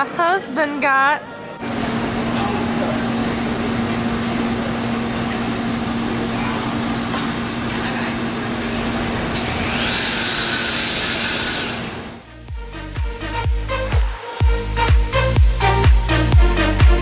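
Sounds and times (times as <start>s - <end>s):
electronic dance music: 12.5s - 17.0s.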